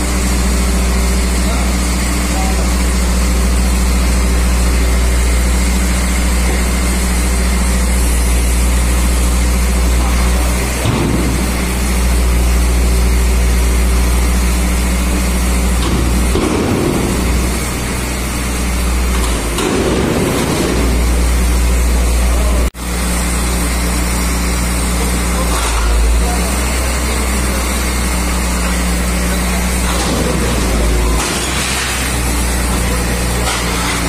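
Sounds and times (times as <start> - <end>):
diesel truck engine droning: 0.0 - 34.0.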